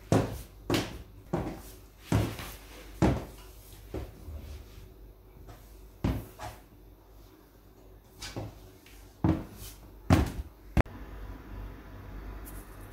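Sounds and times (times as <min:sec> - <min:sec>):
high-heeled footsteps on hard floor: 0:00.1 - 0:04.2, 0:09.2 - 0:10.9.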